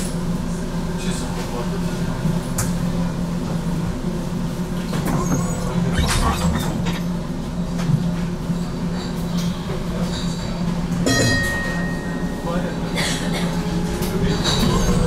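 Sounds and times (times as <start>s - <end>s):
electrical hum: 2.8s - 8.9s.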